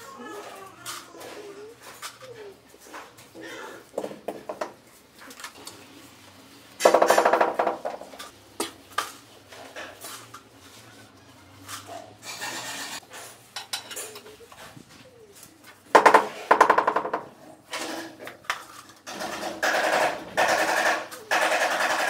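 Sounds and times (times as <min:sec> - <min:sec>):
loud rapid scraping rattles: 0:06.8 - 0:08.0, 0:12.2 - 0:13.0, 0:19.0 - 0:22.0.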